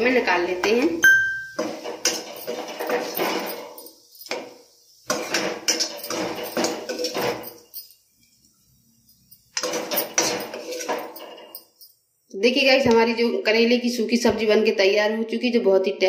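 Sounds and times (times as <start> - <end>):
metal spoon scraping a metal pan: 1.4 - 8.4, 9.1 - 11.8.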